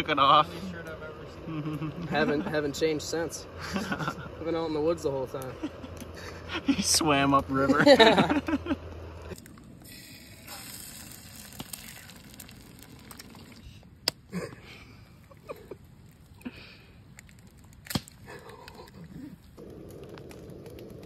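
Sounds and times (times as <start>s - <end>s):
eggs cracking: 9.3s - 14.2s, 15.3s - 21.0s
eggs sizzling in a pan: 9.8s - 13.6s.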